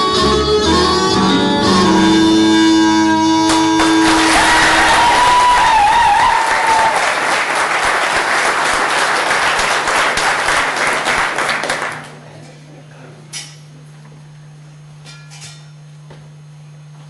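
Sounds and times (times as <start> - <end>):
audience applauding: 3.5 - 12.2.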